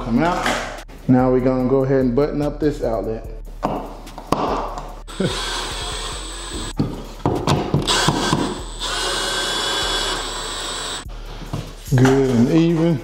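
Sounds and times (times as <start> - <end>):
power drill driving screws: 5.1 - 6.7, 7.9 - 11.0.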